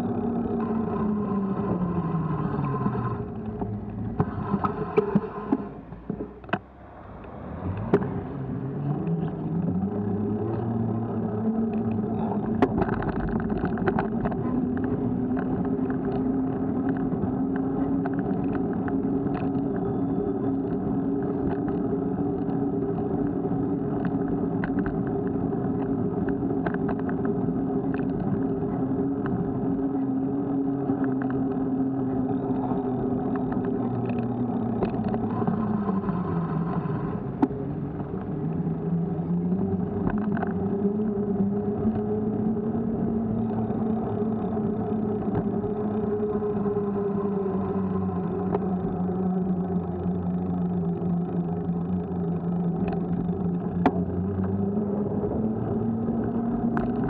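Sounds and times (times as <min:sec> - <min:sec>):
road rumble: 0:00.0 - 0:57.0
small vehicle motor: 0:00.0 - 0:57.0.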